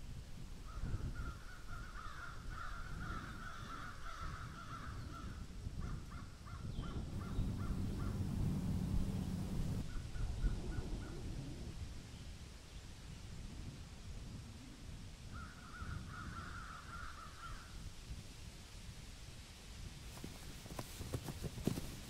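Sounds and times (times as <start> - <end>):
crows cawing: 1.4 - 5.0, 6.2 - 8.6, 15.4 - 17.7
low rumble: 6.8 - 12.0.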